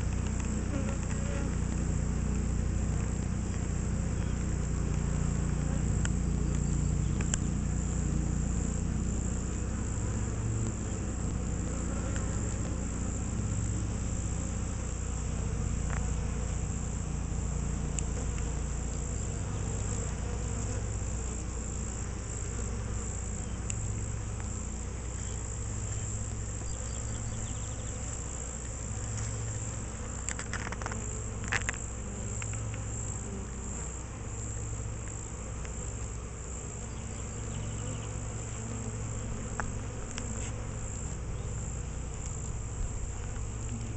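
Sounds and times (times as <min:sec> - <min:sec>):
faint ticks: 0:00.0 - 0:07.8, 0:08.5 - 0:14.4, 0:15.0 - 0:16.6, 0:17.8 - 0:43.9
honeybees buzzing: 0:00.0 - 0:43.9.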